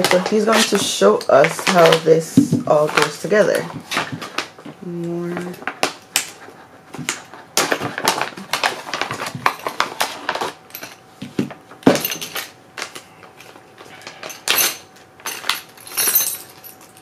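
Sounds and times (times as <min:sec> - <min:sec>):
plastic bags crinkling: 0:07.1 - 0:10.8
metal parts knocking and clinking: 0:11.9 - 0:12.5, 0:13.4 - 0:17.0.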